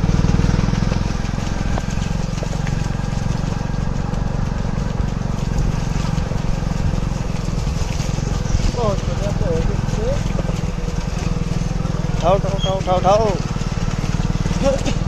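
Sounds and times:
small engine running steadily: 0.0 - 15.0.

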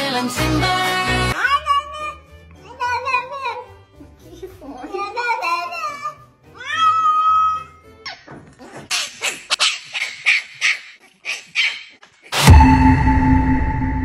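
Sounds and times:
background music: 0.0 - 8.6
cat crying: 5.8 - 8.1
puppy yipping and barking: 6.7 - 12.1
loud held tone: 12.4 - 14.0.

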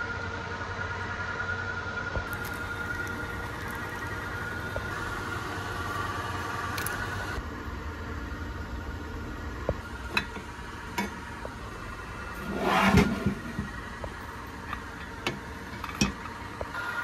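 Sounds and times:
steady background hum: 0.0 - 17.0
metal scraping on workbench: 12.4 - 13.7.

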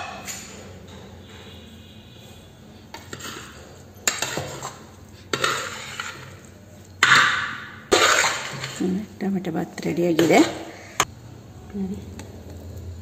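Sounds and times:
metal spoon scraping metal pot: 2.9 - 9.0, 10.0 - 10.7.

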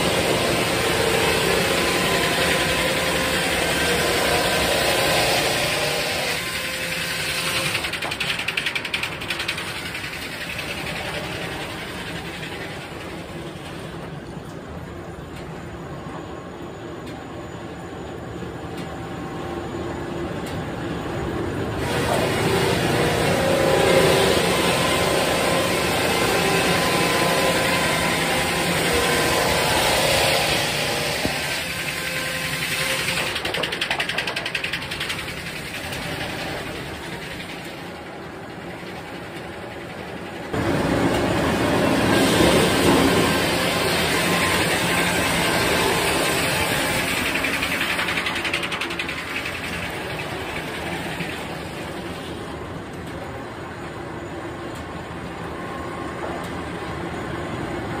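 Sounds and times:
circular saw cutting log: 0.0 - 13.8, 21.8 - 38.0, 40.2 - 52.2
sawmill machinery rumbling: 0.0 - 58.0
log carriage rattling on track: 31.5 - 40.5, 43.8 - 52.2.

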